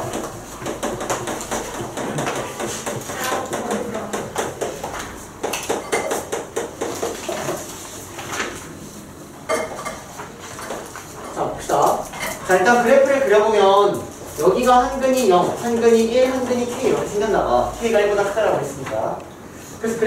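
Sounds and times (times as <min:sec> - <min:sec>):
chalk tapping on chalkboard: 0:00.0 - 0:07.8.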